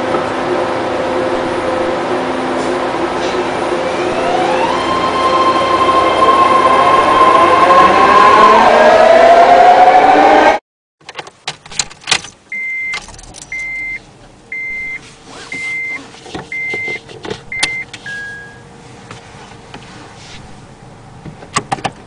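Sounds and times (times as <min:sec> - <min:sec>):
electronic warning chime beeping: 0:12.6 - 0:15.0.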